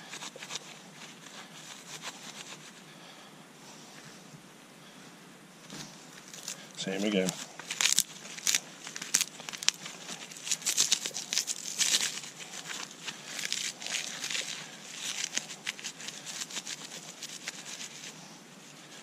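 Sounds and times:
bark rustling and crackling: 0:05.8 - 0:19.0.

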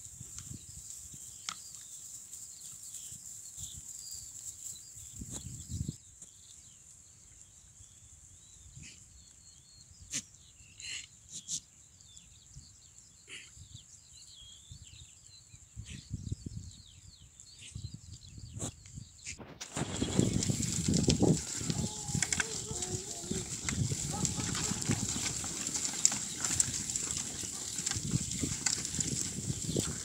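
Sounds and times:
small birds chirping: 0:00.3 - 0:30.0
goats bleating: 0:21.3 - 0:26.6.

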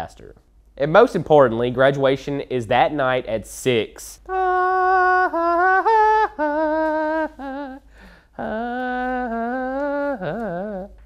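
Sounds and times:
man humming a slow tune: 0:04.3 - 0:11.0.

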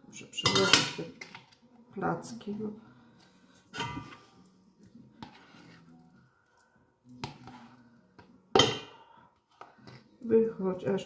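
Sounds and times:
spoon scraping out curd: 0:05.1 - 0:06.2, 0:07.2 - 0:07.9.

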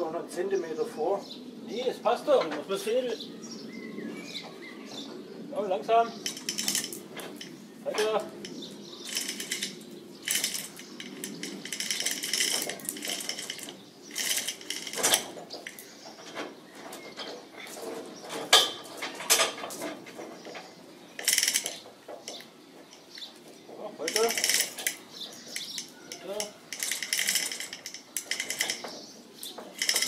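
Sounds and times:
chain rattle and ratchet clicking: 0:06.2 - 0:16.0, 0:21.2 - 0:23.1, 0:24.0 - 0:30.0.

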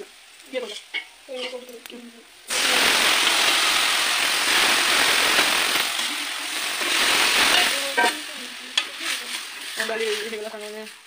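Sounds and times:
chicken sizzling in a pan: 0:00.0 - 0:11.0
liquid pouring: 0:02.5 - 0:08.0
ladle clanking on pan: 0:07.4 - 0:09.0.

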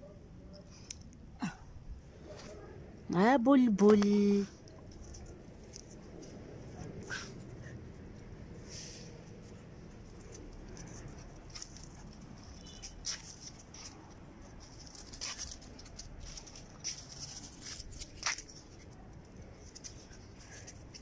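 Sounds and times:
dog paws scuffing on paving: 0:04.4 - 0:21.0.

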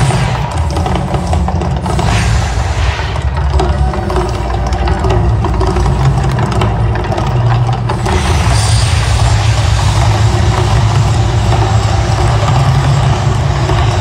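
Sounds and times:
gas fire bursts: 0:00.0 - 0:04.4
deep rumble: 0:00.0 - 0:14.0.

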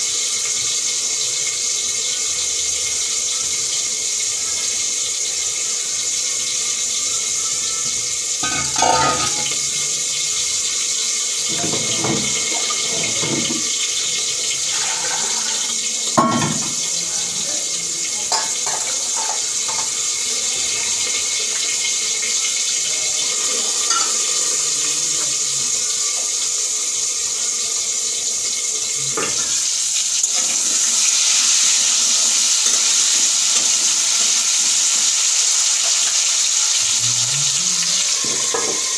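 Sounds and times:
food sizzling in oil: 0:00.0 - 0:38.9
kitchen tap running: 0:06.3 - 0:25.7, 0:28.5 - 0:38.9
metal pots and utensils clinking: 0:08.4 - 0:10.0, 0:11.4 - 0:17.3, 0:18.2 - 0:20.2, 0:23.1 - 0:25.4, 0:28.8 - 0:34.5, 0:35.8 - 0:38.9.

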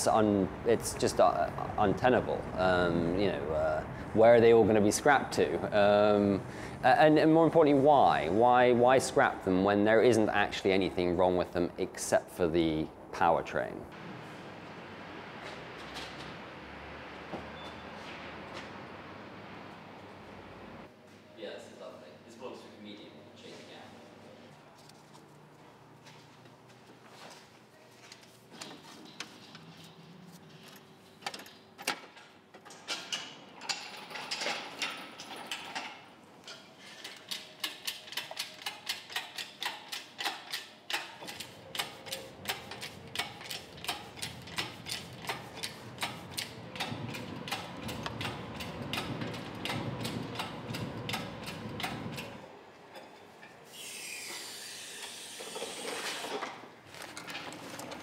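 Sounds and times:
ratchet clicking: 0:37.1 - 0:52.3.

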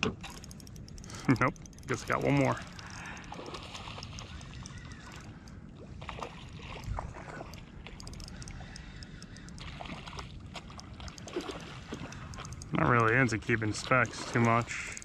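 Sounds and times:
water sloshing and splashing: 0:00.0 - 0:15.0
small ticks: 0:00.2 - 0:05.7, 0:06.7 - 0:15.0
fish thrashing at the surface: 0:01.8 - 0:07.7.

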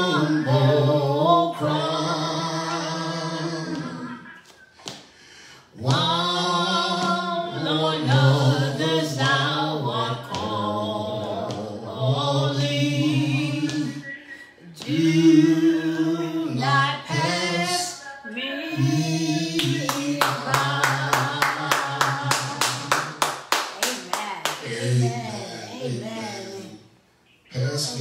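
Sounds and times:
man singing unaccompanied: 0:00.0 - 0:04.2, 0:05.8 - 0:14.0
hand clapping: 0:03.7 - 0:05.1, 0:07.0 - 0:07.2, 0:19.6 - 0:24.7.

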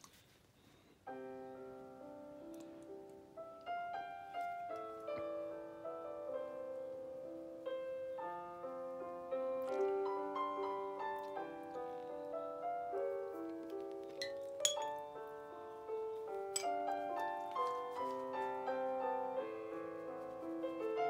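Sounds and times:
solo piano melody: 0:00.8 - 0:21.0.

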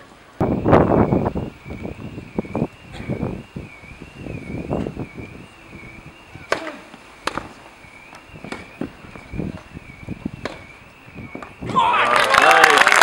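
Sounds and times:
tennis ball hit with rackets: 0:06.4 - 0:08.8, 0:10.4 - 0:10.7.

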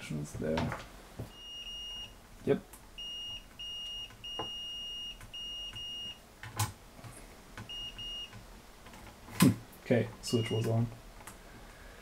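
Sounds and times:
multimeter continuity beep: 0:01.3 - 0:02.2, 0:03.0 - 0:06.2, 0:07.7 - 0:08.4, 0:10.3 - 0:10.7.

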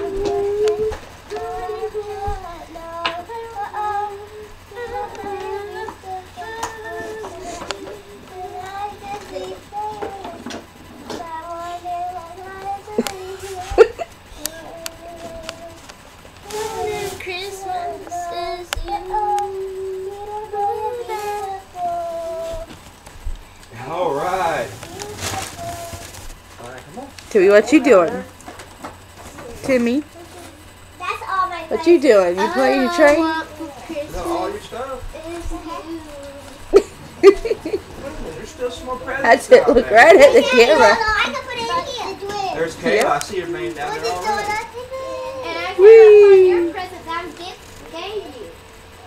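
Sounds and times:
child singing: 0:00.0 - 0:22.8, 0:24.8 - 0:26.3, 0:32.4 - 0:36.6, 0:43.8 - 0:45.8.

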